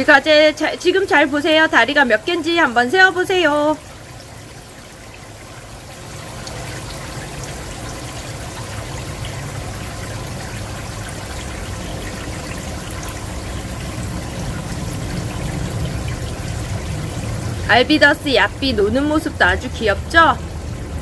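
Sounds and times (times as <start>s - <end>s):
aquarium water trickling: 0.0s - 21.0s
low hum: 5.7s - 21.0s.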